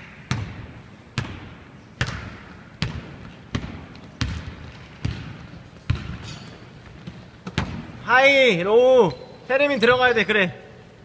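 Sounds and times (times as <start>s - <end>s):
basketball bouncing on wooden floor: 0.3s - 7.9s.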